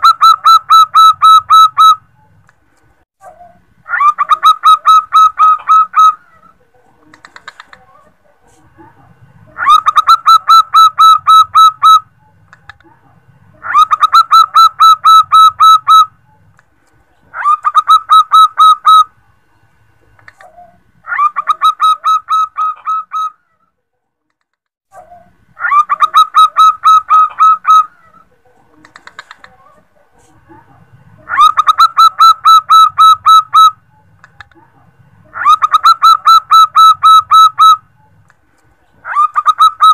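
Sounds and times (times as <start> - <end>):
dove calling rapid high notes: 0.0 - 2.4, 3.9 - 7.8, 9.5 - 12.8, 13.6 - 16.5, 17.3 - 19.2, 20.2 - 23.4, 25.1 - 29.6, 31.2 - 34.4, 35.2 - 38.2, 39.0 - 39.9.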